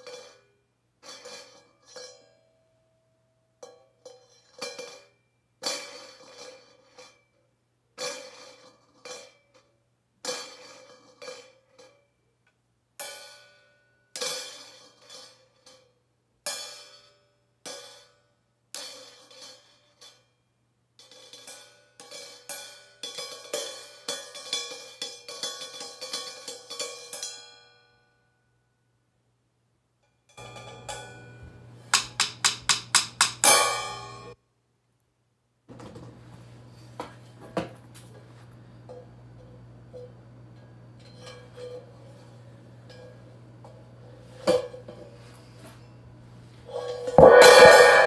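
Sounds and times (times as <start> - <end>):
cymbal struck with drumsticks: 31.9 - 34.4, 47.2 - 48.0.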